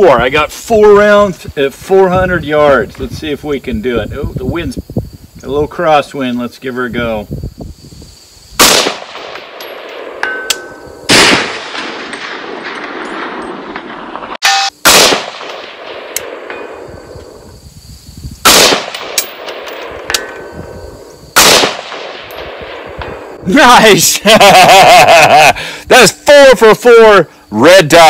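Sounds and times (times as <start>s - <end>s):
rifle shots echoing: 8.6s - 16.9s, 18.4s - 20.4s, 21.4s - 23.4s
metallic target ring: 9.5s - 11.0s, 14.4s - 14.8s.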